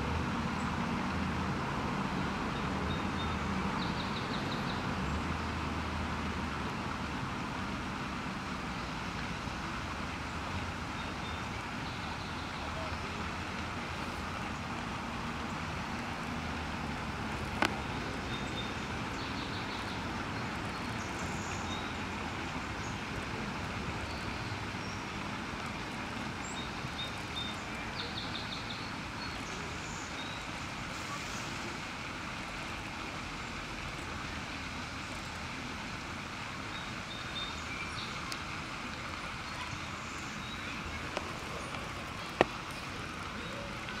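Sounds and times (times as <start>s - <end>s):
distant road traffic hum: 0.0s - 44.0s.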